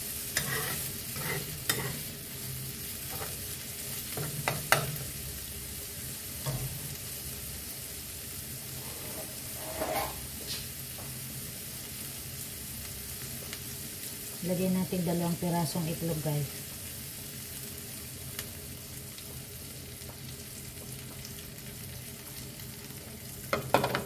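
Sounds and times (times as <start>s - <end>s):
food sizzling in a frying pan: 0.0s - 24.0s
spatula scraping and clicking: 0.4s - 2.0s.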